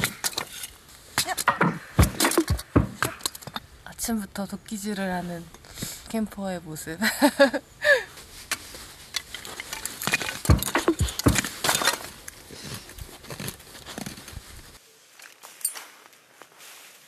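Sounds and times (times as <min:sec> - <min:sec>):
hatchet splitting wood: 0:00.0 - 0:03.6, 0:09.9 - 0:12.2.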